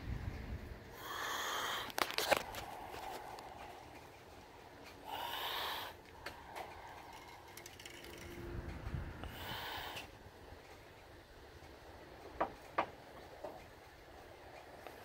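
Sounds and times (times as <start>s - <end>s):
handling rustle: 1.9s - 4.9s.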